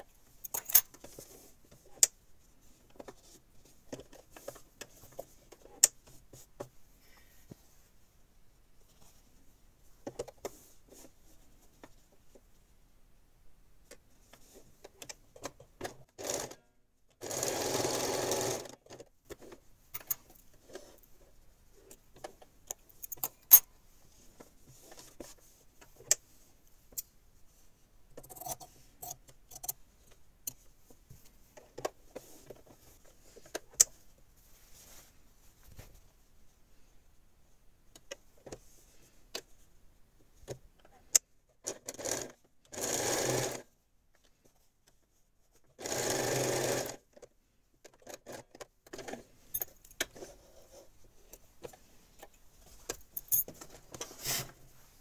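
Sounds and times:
electric sewing machine stitching: 0:17.2 - 0:18.7, 0:41.9 - 0:43.6, 0:45.8 - 0:47.0.

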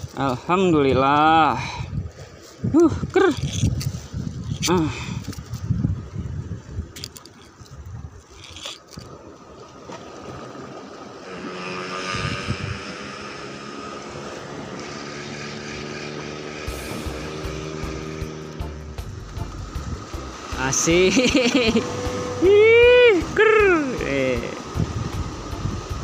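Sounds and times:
light scraping and handling: 0:02.3 - 0:05.8, 0:06.8 - 0:09.2
steady motor drone: 0:10.9 - 0:26.0.

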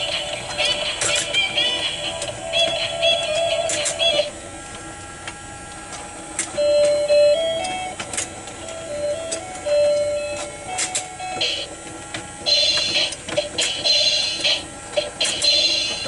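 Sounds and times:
toy motor whirring: 0:00.0 - 0:04.3, 0:12.4 - 0:16.0
toy beeping tune: 0:06.6 - 0:08.0, 0:08.6 - 0:11.7, 0:12.4 - 0:13.2, 0:15.4 - 0:16.0.

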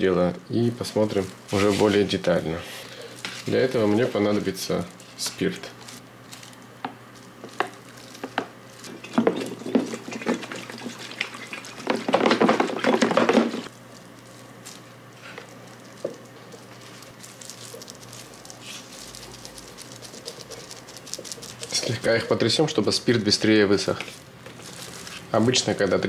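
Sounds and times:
liquid pouring and sloshing: 0:08.8 - 0:13.7
liquid splashing: 0:08.9 - 0:13.7.

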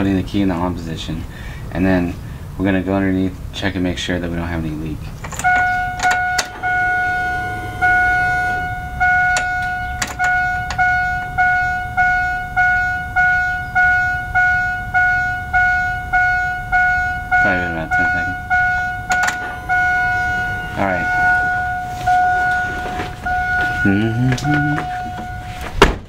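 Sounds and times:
dashboard warning chime: 0:05.4 - 0:25.8.

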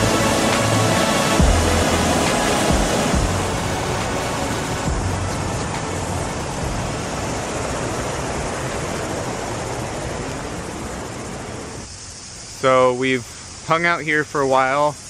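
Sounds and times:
river water rushing: 0:00.0 - 0:11.9.

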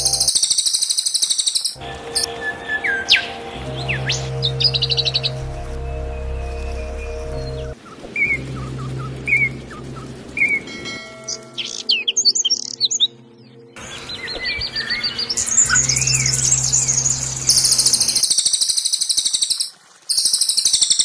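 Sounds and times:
fast high-pitched bird trill: 0:00.0 - 0:03.3, 0:15.5 - 0:21.0
songbirds chirping and trilling: 0:00.0 - 0:21.0.

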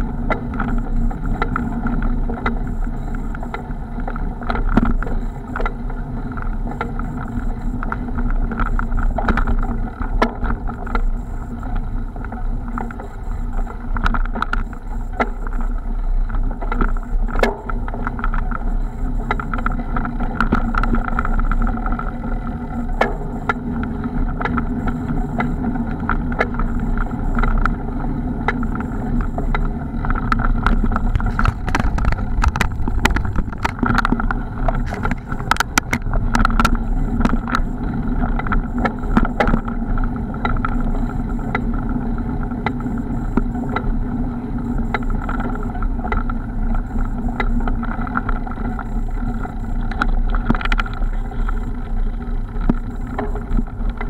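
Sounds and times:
bike riding on dirt track: 0:00.0 - 0:54.0
wind noise: 0:00.0 - 0:54.0
bike knocks and rattles: 0:17.3 - 0:18.4.

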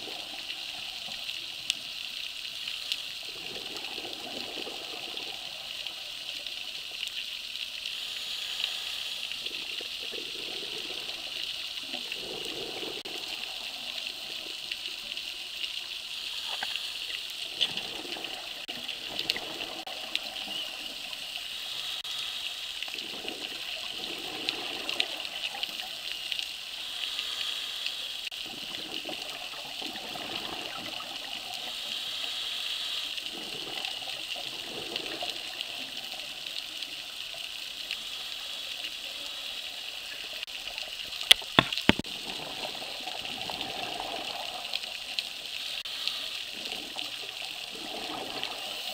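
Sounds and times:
rushing exhaled bubbles: 0:03.2 - 0:06.2, 0:09.3 - 0:15.1, 0:17.4 - 0:21.2, 0:22.9 - 0:26.0, 0:28.3 - 0:31.6, 0:33.3 - 0:36.2, 0:41.4 - 0:45.8, 0:46.4 - 0:48.9
underwater breathing hiss: 0:07.6 - 0:40.5, 0:42.0 - 0:48.9.

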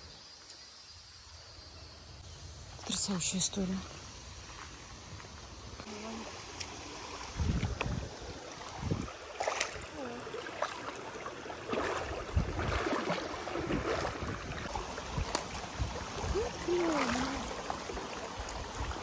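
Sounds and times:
feet wading and splashing water: 0:03.8 - 0:19.0.

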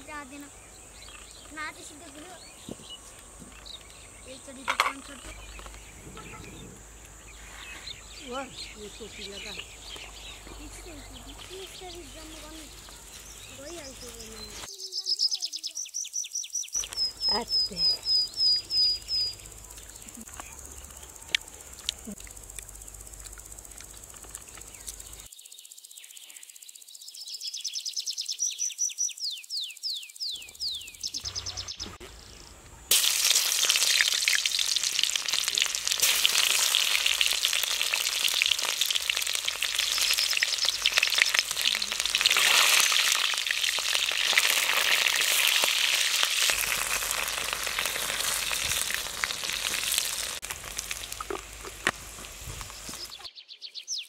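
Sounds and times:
high chirps: 0:00.1 - 0:32.2, 0:32.9 - 0:50.4
onions sizzling in hot oil: 0:32.9 - 0:53.3.

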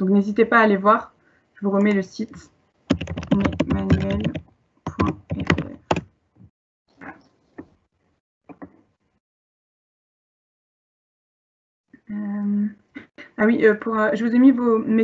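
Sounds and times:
typing on computer keyboard: 0:02.9 - 0:06.1.

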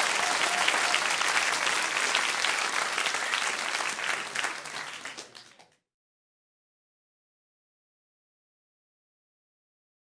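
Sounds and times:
applause: 0:00.0 - 0:05.9.

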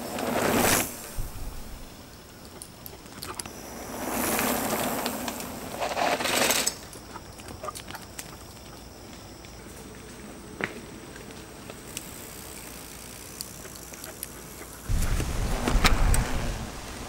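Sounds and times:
rushing crunching movement on trail: 0:00.0 - 0:17.0.

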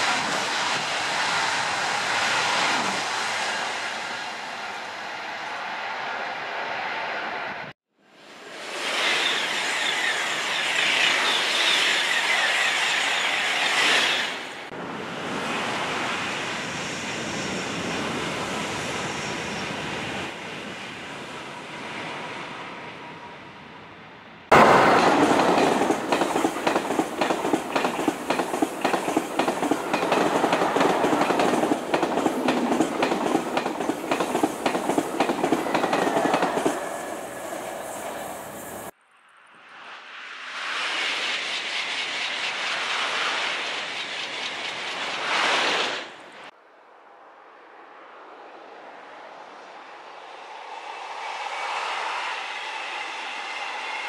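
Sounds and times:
high-speed train rushing hiss: 0:00.0 - 0:07.4, 0:08.2 - 0:23.7, 0:24.5 - 0:39.0, 0:40.0 - 0:46.5, 0:49.3 - 0:54.0
distant train rush: 0:00.0 - 0:39.0, 0:39.6 - 0:54.0
train wheels clicking over rail joints: 0:24.6 - 0:38.9.

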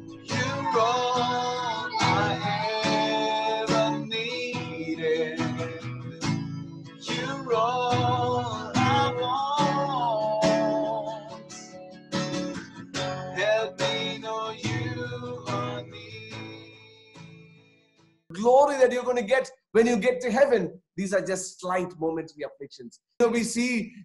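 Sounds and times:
strummed acoustic guitar: 0:00.0 - 0:17.7.

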